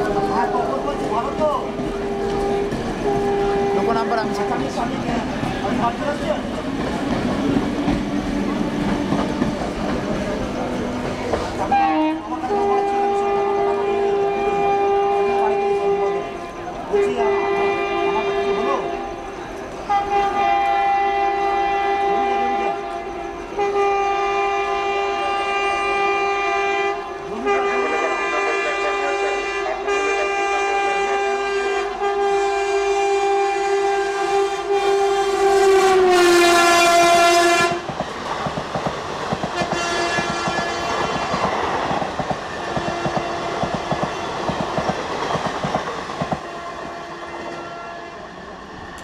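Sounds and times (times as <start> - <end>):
locomotive horn blast: 0.0 - 5.0, 11.6 - 37.9, 39.5 - 41.8, 42.5 - 44.0, 46.4 - 48.4
train wheels clattering over rail joints: 5.0 - 11.8, 37.7 - 46.5.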